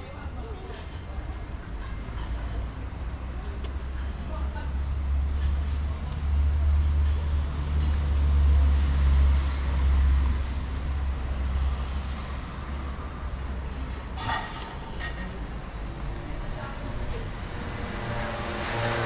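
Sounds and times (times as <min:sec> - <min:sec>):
heavy vehicle passing: 0:04.8 - 0:19.0.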